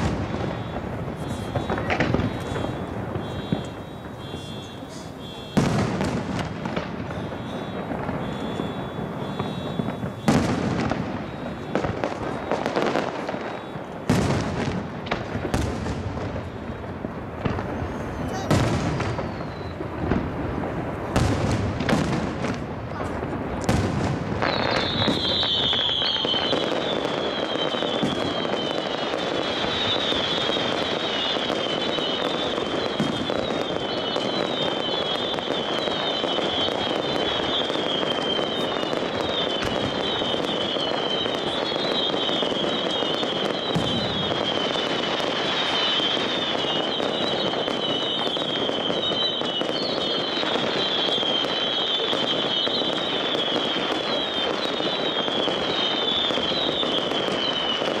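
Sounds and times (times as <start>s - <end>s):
crackle of small bursts: 0.0s - 18.4s, 19.0s - 58.0s
firework bang: 0.0s - 58.0s
whistling fireworks: 0.0s - 58.0s.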